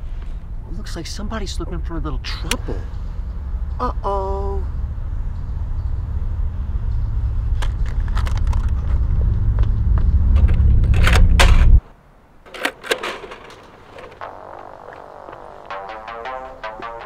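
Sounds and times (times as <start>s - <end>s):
cassette tape deck clicks: 12.5s - 14.2s.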